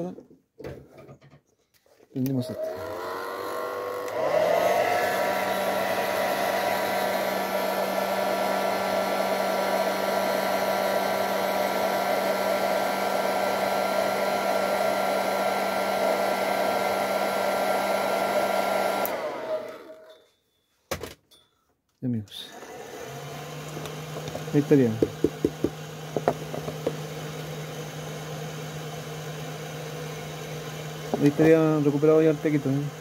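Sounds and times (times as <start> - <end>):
hot-air dryer blowing: 2.5 - 20.1, 22.5 - 33.0.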